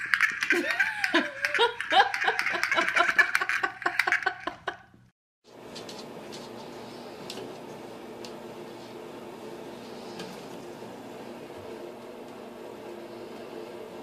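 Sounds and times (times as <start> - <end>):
pull-toy clicking and clacking: 0.0 - 4.6
person laughing: 0.5 - 4.9.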